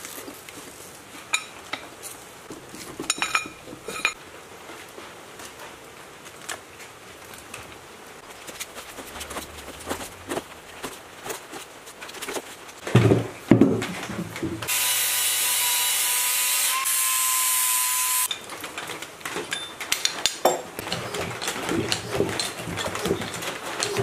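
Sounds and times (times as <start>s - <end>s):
angle grinder grinding metal: 14.7s - 18.3s.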